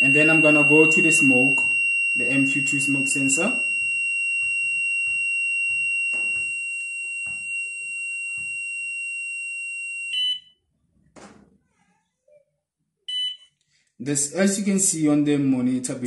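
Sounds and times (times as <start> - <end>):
high-pitched electronic buzzer: 0.0 - 10.4.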